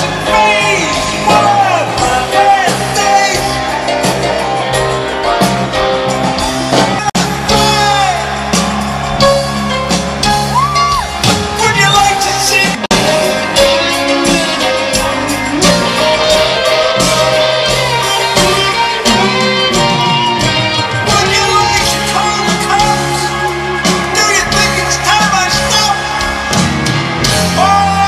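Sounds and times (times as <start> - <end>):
lead vocalist singing: 0.0 - 4.6, 20.8 - 26.5
rock band playing: 0.0 - 28.0.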